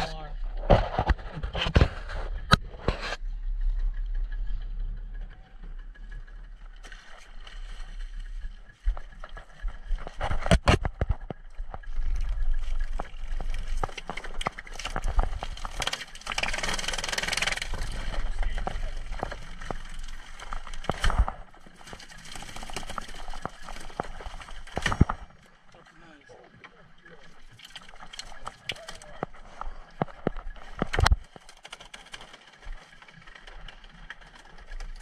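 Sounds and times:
low rumble: 0.0 - 31.2
knocks and clatter: 8.8 - 25.5.

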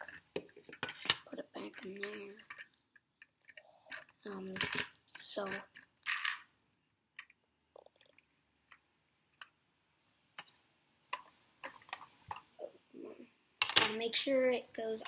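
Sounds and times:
plastic pieces clicking: 2.0 - 6.4.

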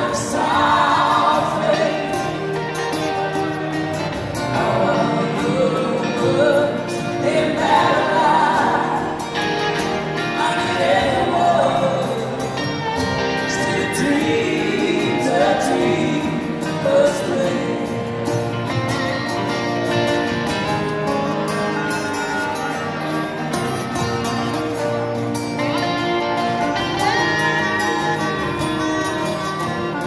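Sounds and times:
woman and man singing in harmony: 0.0 - 3.2, 4.4 - 18.2
acoustic guitars playing: 0.0 - 30.0.

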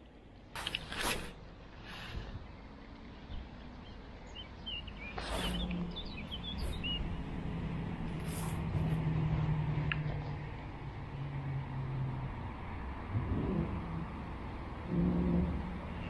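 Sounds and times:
vehicle engine drone: 0.0 - 16.0
small birds chirping: 1.8 - 9.0.

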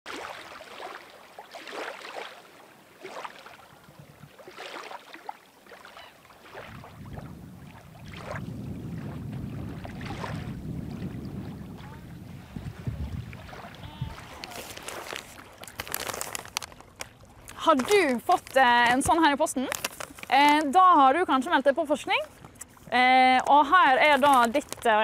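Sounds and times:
small waves lapping on shore: 0.1 - 25.0.

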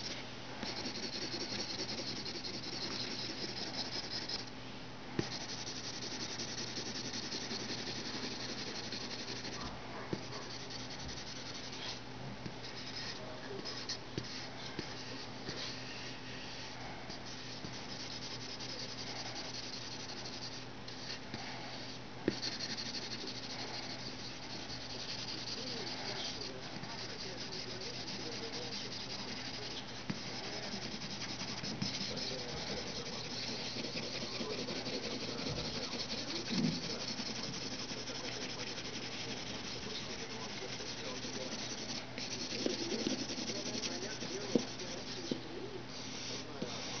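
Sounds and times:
pencil scratching on paper: 0.0 - 4.5, 5.2 - 12.0, 12.6 - 15.9, 16.5 - 47.0.

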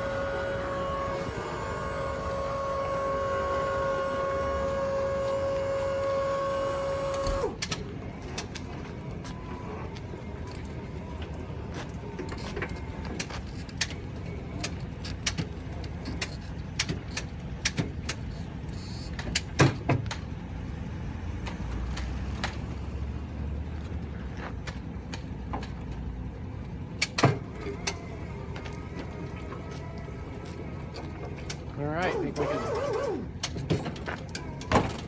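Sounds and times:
pickup truck idling: 0.0 - 35.0
knocks and clunks of engine lowered: 26.9 - 35.0.

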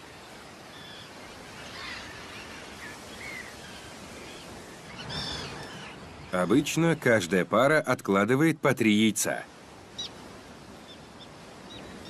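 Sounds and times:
bird calls: 0.0 - 7.3, 9.9 - 12.0
sea surf on rocky shore: 0.0 - 12.0.

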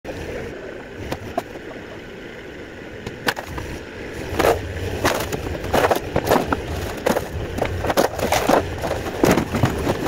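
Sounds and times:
mini excavator running under load: 3.1 - 10.0
wooden boards splintering: 4.2 - 10.0.

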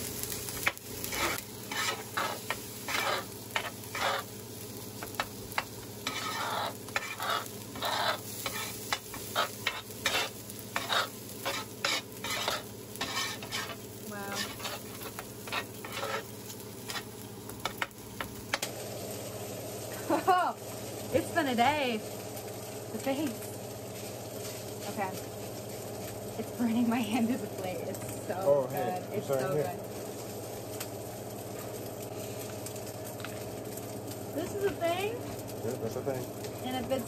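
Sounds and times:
rice sizzling on a griddle: 0.0 - 37.0
metal spatula scraping griddle: 0.6 - 4.3, 5.0 - 17.9.

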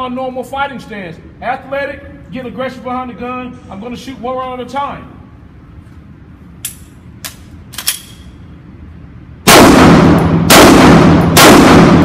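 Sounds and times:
pistol shots indoors: 9.4 - 12.0.

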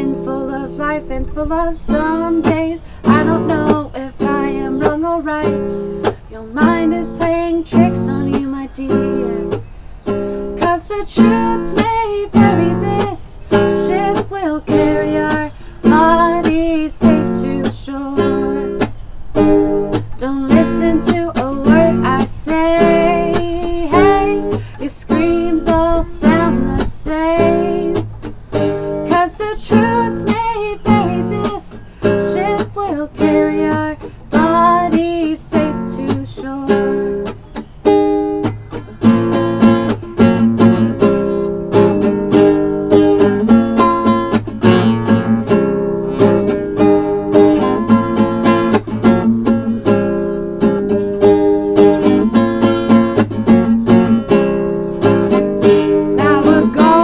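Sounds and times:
woman singing: 0.0 - 9.6, 10.6 - 18.9, 19.9 - 37.4, 46.2 - 49.6, 53.5 - 57.0
strummed nylon-string guitar: 0.0 - 57.0.

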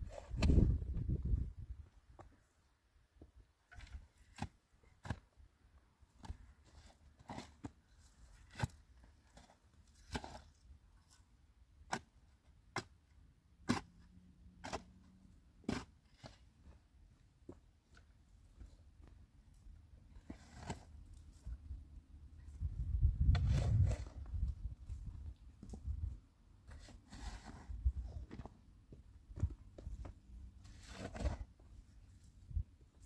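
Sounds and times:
shovel scraping into stony soil: 0.0 - 1.0, 3.7 - 5.3, 6.2 - 11.2, 13.6 - 16.8, 20.1 - 21.7, 22.5 - 26.0, 26.6 - 28.5, 29.4 - 33.0.

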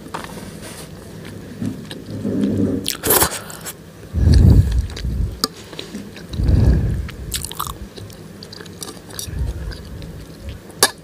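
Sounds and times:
chewing noodles: 0.2 - 11.0
wet mouth sounds: 4.2 - 5.5, 6.2 - 8.1.

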